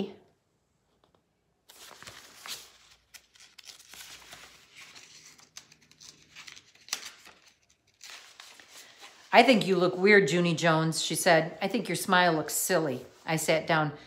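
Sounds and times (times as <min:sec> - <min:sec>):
book pages rustling: 0:00.9 - 0:09.6.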